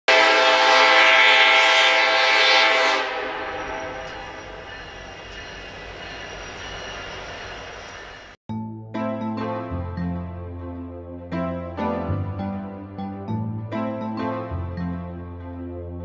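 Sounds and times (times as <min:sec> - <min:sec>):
train horn chord: 0:00.1 - 0:04.0.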